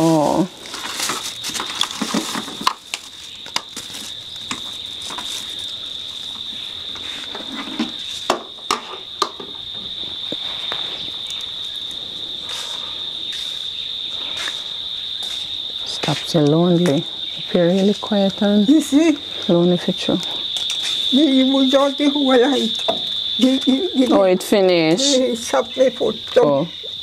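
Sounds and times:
objects being handled: 0.0s - 9.5s
insects chirring: 0.0s - 27.0s.

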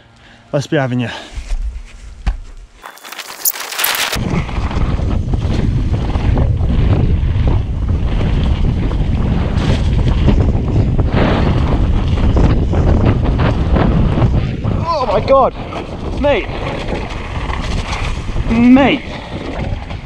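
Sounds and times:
bike clattering on stones: 2.2s - 4.2s
wind buffeting microphone: 4.2s - 20.0s.

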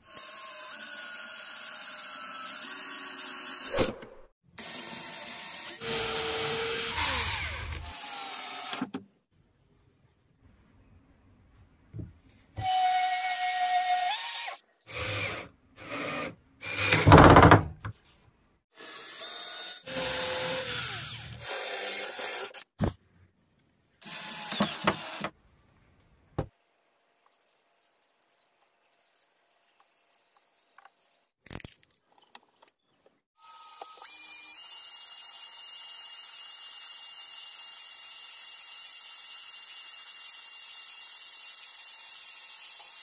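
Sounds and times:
cordless drill boring into wood: 0.0s - 3.7s, 4.6s - 8.9s, 12.6s - 17.4s, 18.8s - 22.7s, 24.0s - 25.3s, 33.4s - 43.0s.

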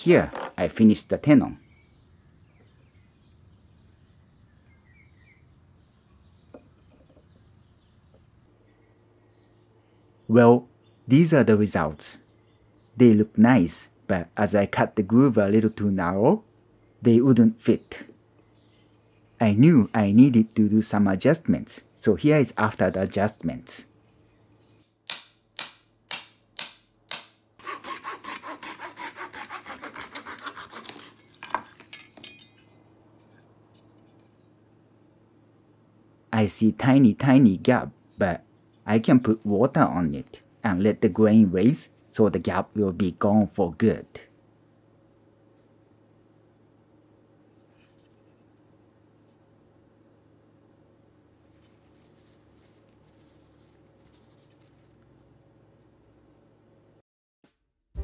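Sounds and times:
soft bird chirps: 1.3s - 11.1s
wood rubbing on wood: 27.6s - 31.9s.

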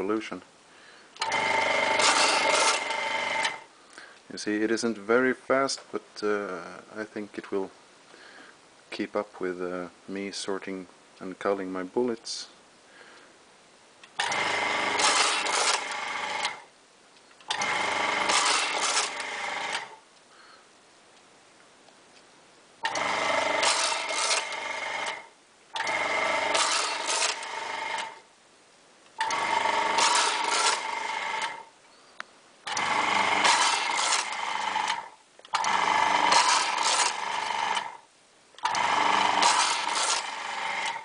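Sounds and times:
electric motor whirring: 1.2s - 3.7s, 14.2s - 16.6s, 17.5s - 20.0s, 22.8s - 28.2s, 29.2s - 31.7s, 32.6s - 38.0s, 38.6s - 41.0s.

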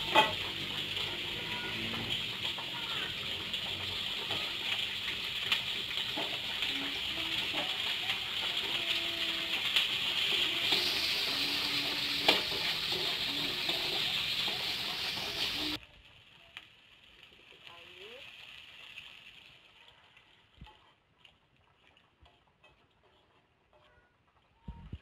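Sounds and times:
wooden spatula scraping pan: 0.0s - 15.8s, 22.2s - 24.0s
food sizzling in hot oil: 0.0s - 25.0s.

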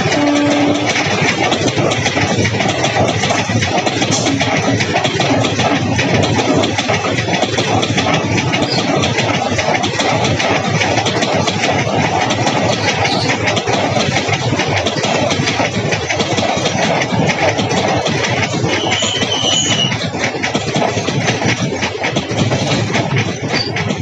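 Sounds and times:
train wheels clattering on rails: 0.0s - 24.0s.

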